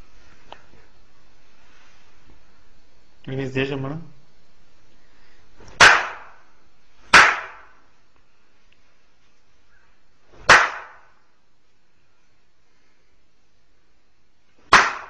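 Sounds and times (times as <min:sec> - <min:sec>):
loud hand slaps: 0:05.7 - 0:06.4, 0:07.1 - 0:07.8, 0:10.3 - 0:11.2, 0:14.7 - 0:15.0.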